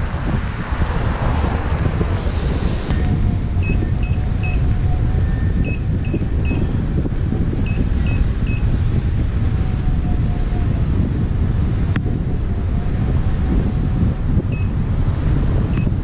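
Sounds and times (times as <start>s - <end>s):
road rumble: 0.0s - 16.0s
wind rush on microphone: 0.0s - 16.0s
high electronic beeps: 2.9s - 4.7s, 5.3s - 6.6s, 7.6s - 8.6s.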